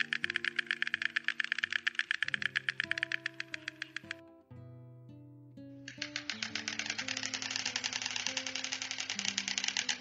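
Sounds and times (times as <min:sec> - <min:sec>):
stork clattering its bill: 0:00.0 - 0:04.2, 0:05.9 - 0:10.0
background music of held notes: 0:00.0 - 0:10.0.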